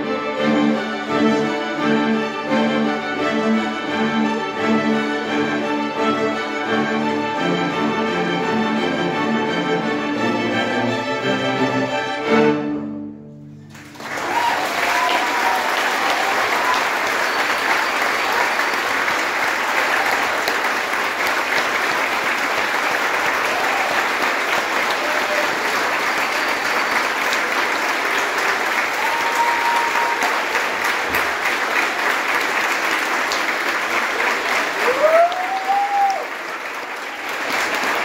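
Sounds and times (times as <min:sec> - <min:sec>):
audience applauding: 0:13.6 - 0:38.0.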